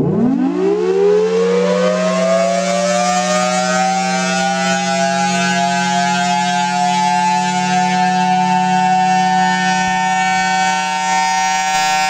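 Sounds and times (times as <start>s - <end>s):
warning siren wailing: 0.0s - 12.0s.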